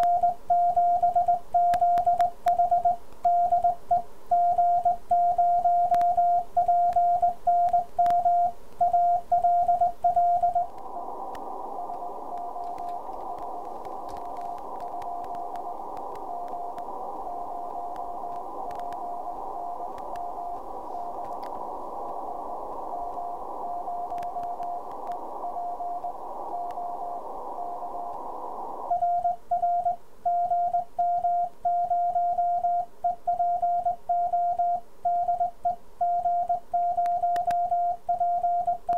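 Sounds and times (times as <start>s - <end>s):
morse code sidetone beeps: 0.0s - 10.7s, 28.9s - 38.9s
radio receiver hiss: 0.0s - 30.2s
faint morse signal: 0.0s - 38.9s.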